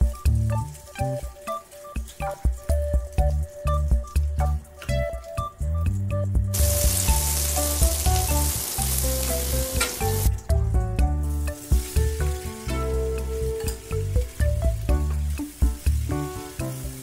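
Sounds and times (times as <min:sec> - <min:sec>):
background music: 0:00.0 - 0:17.0
butter sizzling in a skillet: 0:06.6 - 0:10.3, 0:11.3 - 0:17.0.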